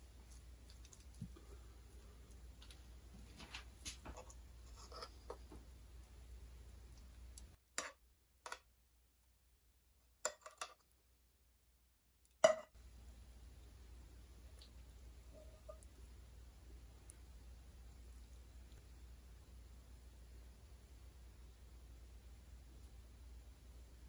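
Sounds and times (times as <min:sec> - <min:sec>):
faint background hiss: 0:00.0 - 0:24.0.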